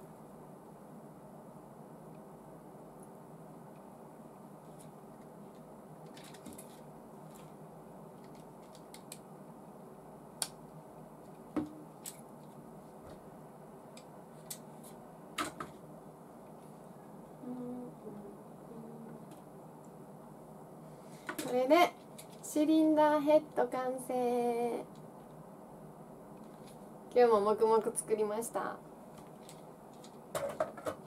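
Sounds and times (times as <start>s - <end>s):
faint background hum: 0.0s - 31.0s
small plastic parts clicking: 8.2s - 9.2s.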